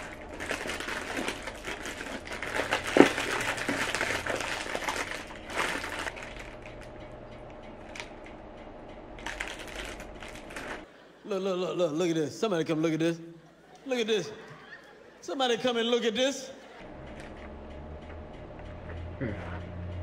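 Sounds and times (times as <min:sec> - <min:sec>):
plastic bag crinkling: 0:00.0 - 0:06.9, 0:09.2 - 0:10.9.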